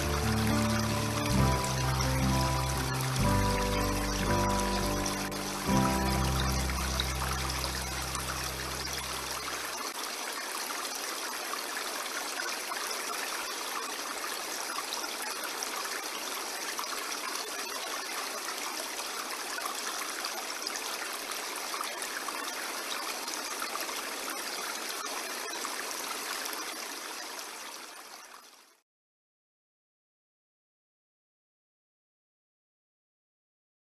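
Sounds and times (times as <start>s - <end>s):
held music chord: 0.0s - 9.4s
stream flowing: 0.0s - 28.8s.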